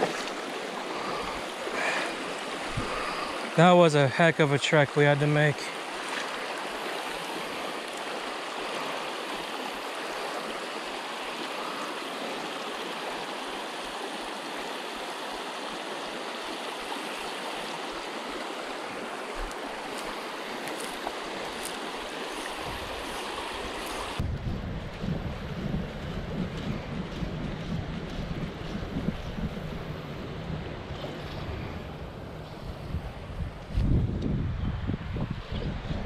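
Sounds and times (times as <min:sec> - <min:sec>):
river water rushing over rocks: 0:00.0 - 0:04.3, 0:05.0 - 0:24.2.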